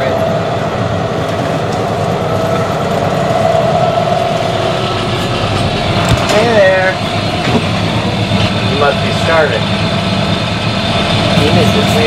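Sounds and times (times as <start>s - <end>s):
engine drone: 0.0s - 12.0s
mid-pitched whine: 0.0s - 12.0s.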